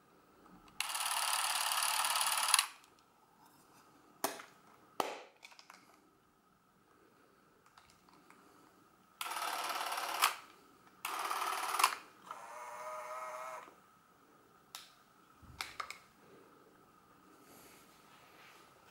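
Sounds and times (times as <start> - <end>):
cine camera motor whirring: 0.8 - 2.8, 9.2 - 10.4, 11.0 - 13.8.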